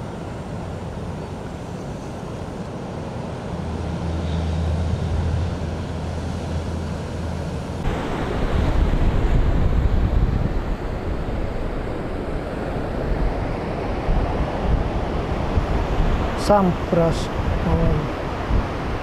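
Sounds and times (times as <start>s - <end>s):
wind buffeting microphone: 0.0s - 19.0s
surf breaking on beach: 3.9s - 19.0s.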